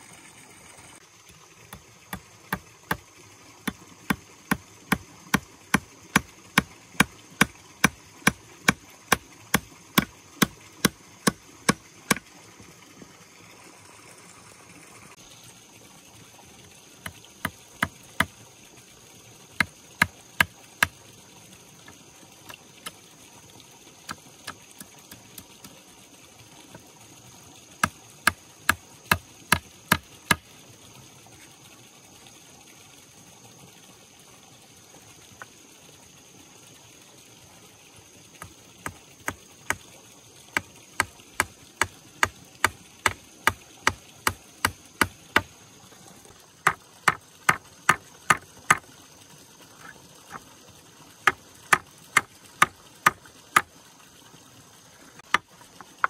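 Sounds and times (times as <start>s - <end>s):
steady hiss: 0.0s - 56.0s
hand tool striking wood: 3.6s - 12.2s, 27.8s - 30.4s, 40.6s - 45.5s, 46.7s - 48.8s, 51.3s - 53.7s, 55.2s - 56.0s.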